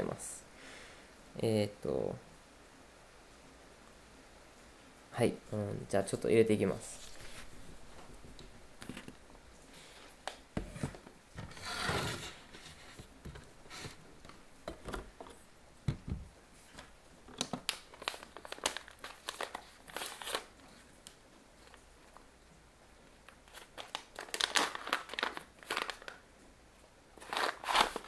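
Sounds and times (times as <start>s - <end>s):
paper rustling: 6.9s - 7.6s, 16.6s - 20.9s, 23.4s - 26.2s, 27.2s - 28.0s
paper filter crinkling: 16.7s - 22.2s, 23.3s - 26.2s, 27.2s - 28.0s.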